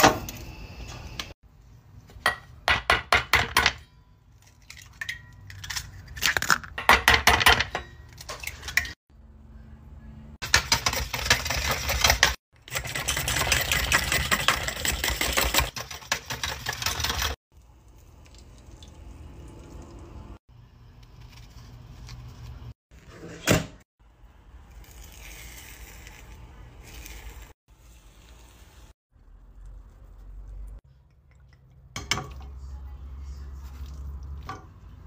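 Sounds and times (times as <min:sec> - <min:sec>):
whisk beating eggs in metal bowl: 0:10.4 - 0:17.4.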